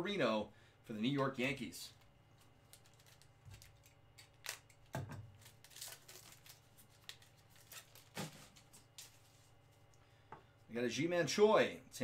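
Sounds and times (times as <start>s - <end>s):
foil pack crinkling: 1.9s - 9.8s.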